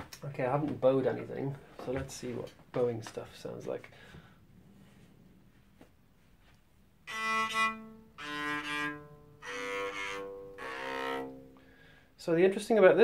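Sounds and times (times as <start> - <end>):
muted bowed cello notes: 7.0 - 11.8.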